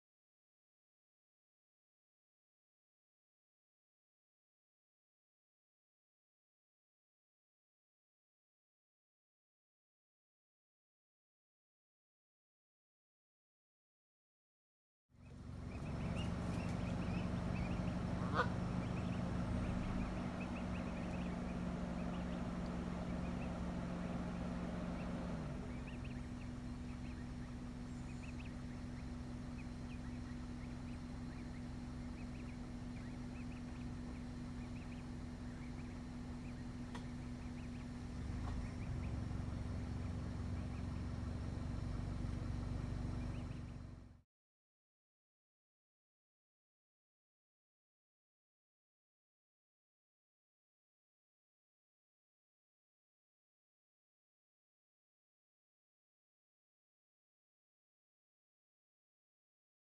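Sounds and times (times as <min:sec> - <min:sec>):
geese calling: 0:15.2 - 0:39.3
steady low hum: 0:15.2 - 0:44.2.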